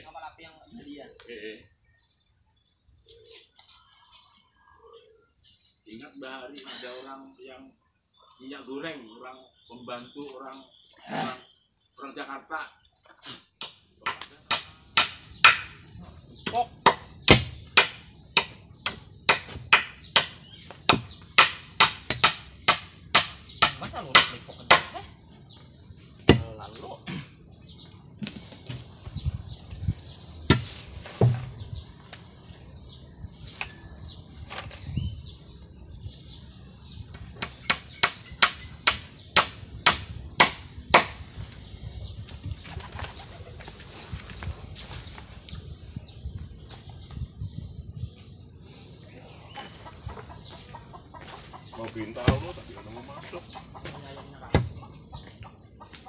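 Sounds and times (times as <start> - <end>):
insects droning: 0.0 - 56.0
blade chopping bamboo: 14.1 - 15.8, 16.9 - 24.9, 37.4 - 41.2.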